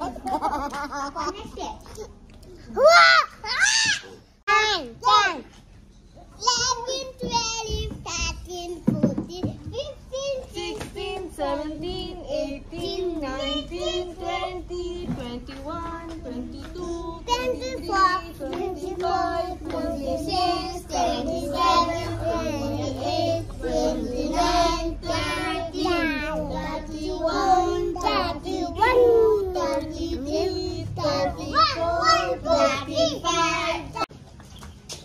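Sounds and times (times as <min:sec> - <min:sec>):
children singing: 0:10.2 - 0:34.1.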